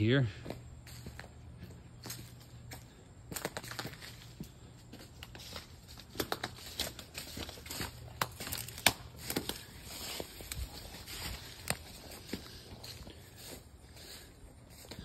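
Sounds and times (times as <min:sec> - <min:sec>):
leaves and twigs rustling: 0:00.8 - 0:15.0
twigs snapping: 0:05.2 - 0:12.0.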